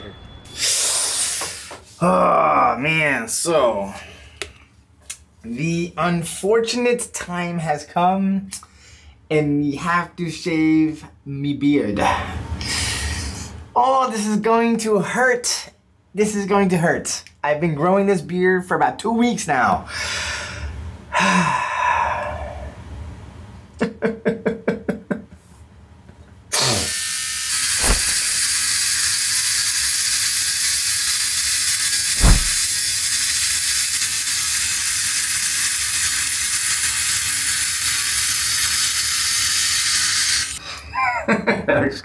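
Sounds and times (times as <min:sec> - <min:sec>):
electric beard trimmer running: 0:35.2 - 0:40.5.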